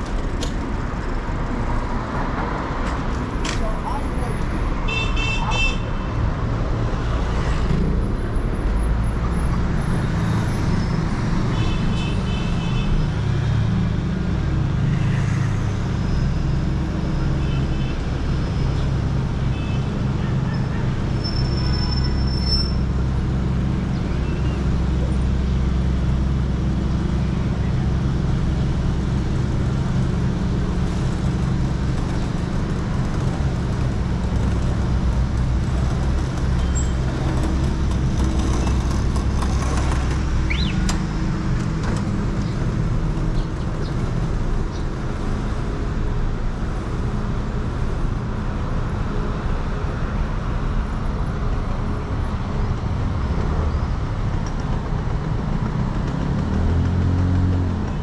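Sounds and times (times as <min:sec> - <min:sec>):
street traffic: 0:00.0 - 0:58.0
heavy vehicle engine drone: 0:22.8 - 0:58.0.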